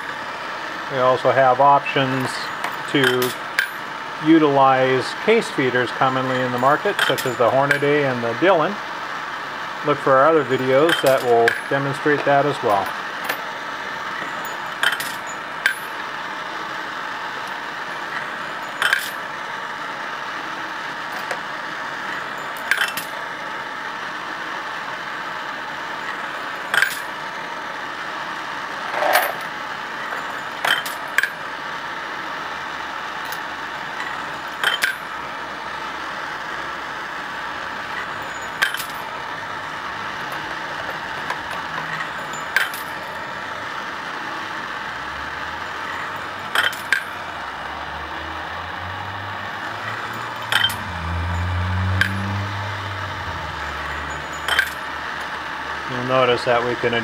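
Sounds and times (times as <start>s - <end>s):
metal case clinking as it drops: 29.0s - 29.4s, 38.2s - 39.1s, 54.0s - 54.8s.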